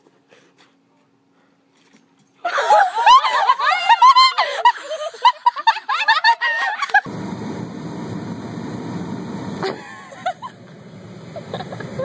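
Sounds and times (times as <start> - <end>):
high-pitched laughter: 2.4 - 7.1.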